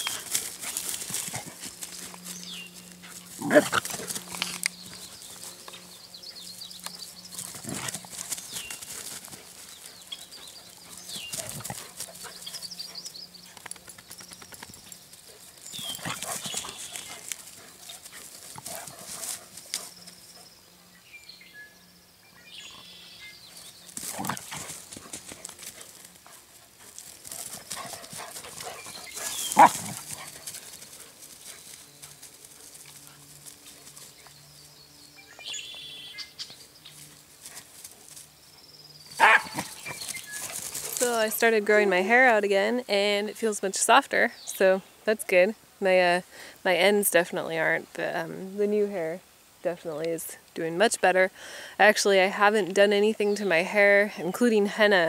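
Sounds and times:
dogs play-fighting: 0:00.0 - 0:05.9, 0:06.8 - 0:20.4, 0:23.9 - 0:34.4.

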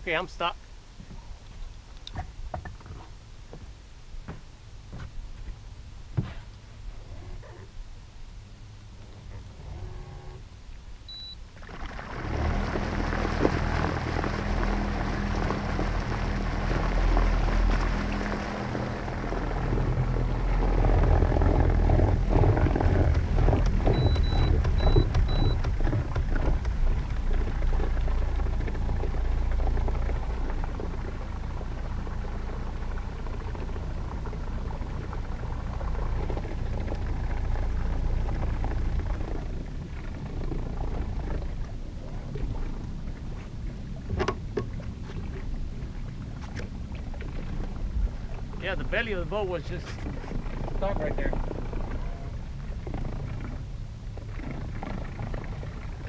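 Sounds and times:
propeller churning water: 0:00.0 - 0:56.0
outboard engine running: 0:04.9 - 0:56.0
short electronic beeps: 0:11.1 - 0:11.4, 0:23.9 - 0:25.6.

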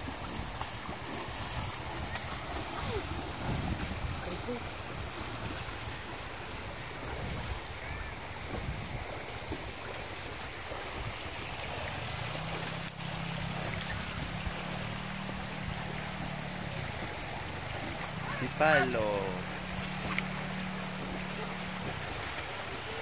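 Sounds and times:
river water rushing over stones: 0:00.0 - 0:23.0
low steady hum: 0:11.3 - 0:23.0.

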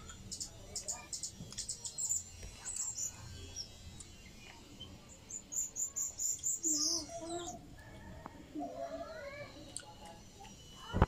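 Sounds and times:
small animal chirping: 0:00.0 - 0:07.6.

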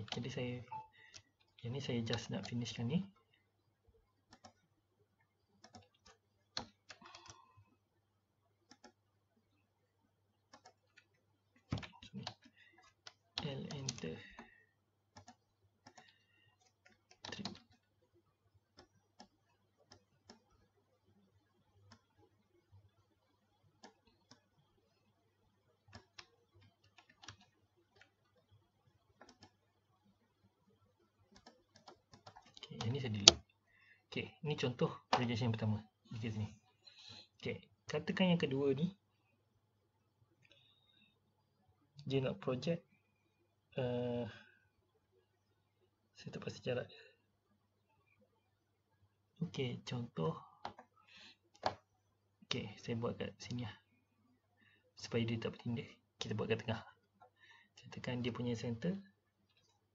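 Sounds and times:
mouse and keyboard clicks: 0:04.3 - 0:04.6, 0:05.6 - 0:07.4, 0:08.7 - 0:09.0, 0:10.5 - 0:14.5, 0:15.1 - 0:17.8, 0:25.9 - 0:28.3, 0:29.2 - 0:29.6, 0:31.3 - 0:33.5, 0:51.6 - 0:51.9
mouse clicks: 0:04.3 - 0:04.6, 0:08.7 - 0:09.0, 0:10.5 - 0:11.1, 0:29.2 - 0:29.6, 0:31.3 - 0:33.5.

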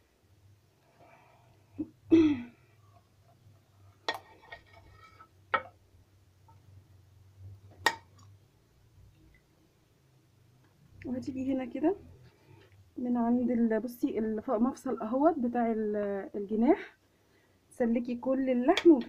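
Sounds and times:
person clearing throat: 0:01.8 - 0:02.6.

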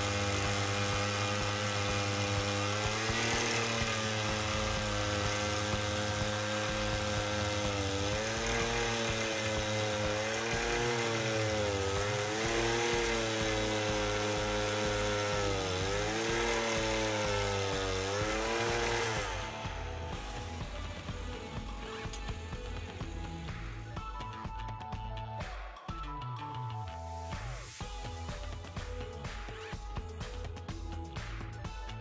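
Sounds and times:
earth auger engine running: 0:00.0 - 0:25.2
background music with beat: 0:00.0 - 0:32.0.

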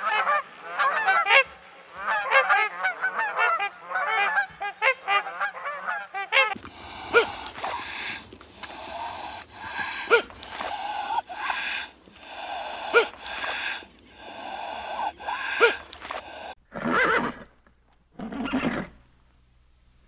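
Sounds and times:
horse neighing and blowing: 0:06.5 - 0:17.6, 0:18.2 - 0:19.0.

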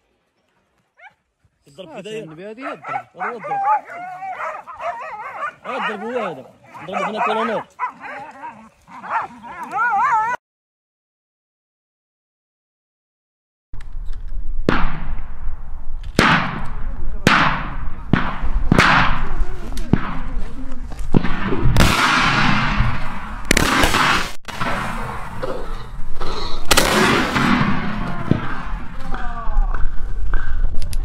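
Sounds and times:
echoing gunshots: 0:14.6 - 0:29.2.

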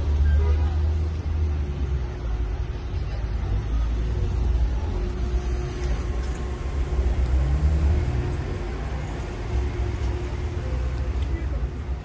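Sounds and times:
low rumble of street traffic: 0:00.0 - 0:12.0
vehicle engine rising in pitch: 0:04.7 - 0:11.0.

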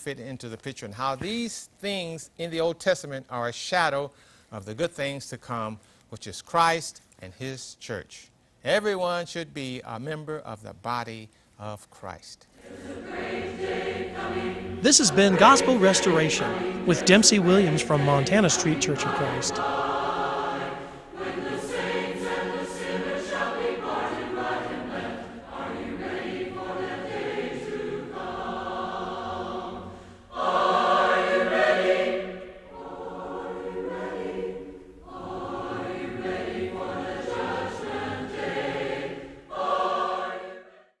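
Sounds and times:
choir singing a hymn: 0:12.6 - 0:41.0.

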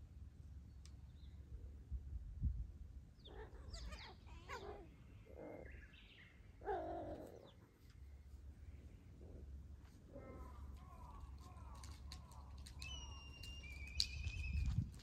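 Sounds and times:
cat meowing: 0:03.3 - 0:04.9.

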